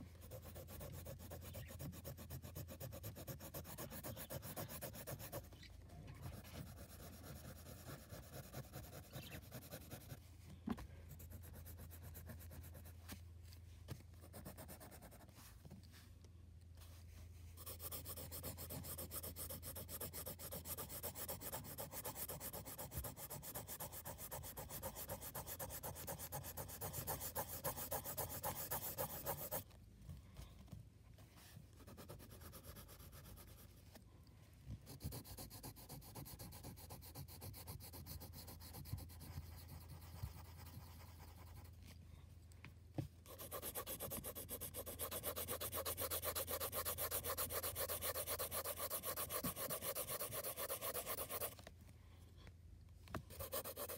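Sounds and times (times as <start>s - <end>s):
pencil scratching on paper: 0.2s - 10.2s, 11.1s - 13.0s, 14.2s - 15.4s, 17.6s - 29.6s, 31.8s - 33.7s, 34.9s - 41.7s, 43.3s - 51.6s, 53.2s - 53.9s.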